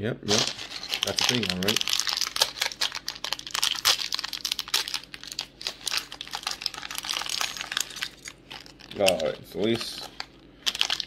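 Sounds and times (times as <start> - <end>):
plastic bag crinkling: 0.3 - 11.0.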